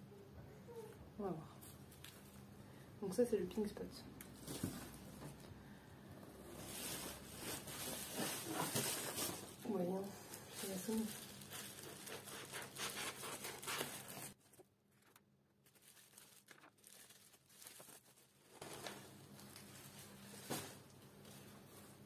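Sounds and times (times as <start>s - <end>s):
bubble wrap crinkling: 1.6s - 2.5s, 6.4s - 22.0s.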